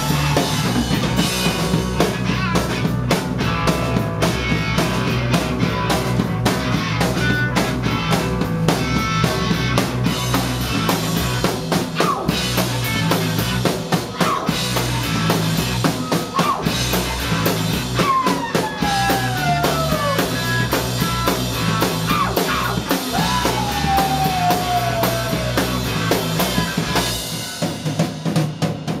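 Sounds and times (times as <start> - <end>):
electric guitars: 0.0 - 28.3
drum kit beat: 0.0 - 29.0
rock band playing live: 0.0 - 29.0.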